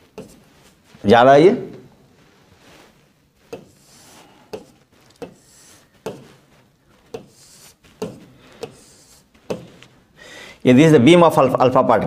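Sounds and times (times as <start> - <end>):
stylus rubbing on glass: 3.4 - 9.8.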